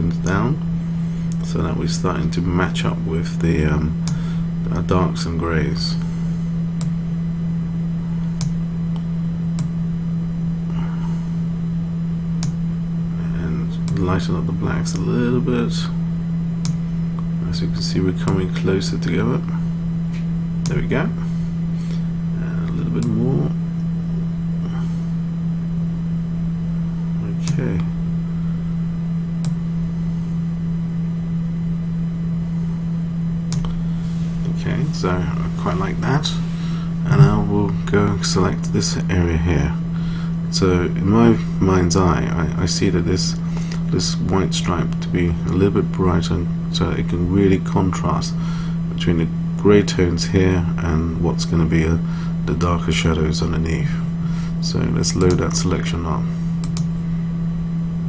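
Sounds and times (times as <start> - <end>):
steady low hum: 0.0 - 58.0
computer mouse clicks: 56.6 - 56.9.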